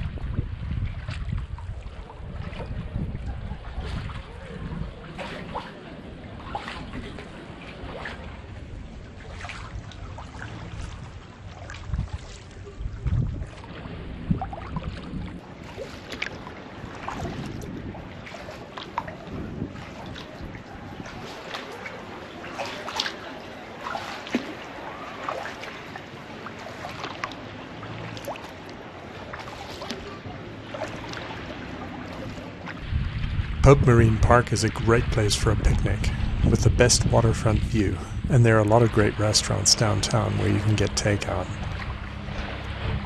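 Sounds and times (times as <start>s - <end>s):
steady low rumble: 0.0s - 15.7s, 30.0s - 43.0s
paddle splashing and dripping: 0.0s - 43.0s.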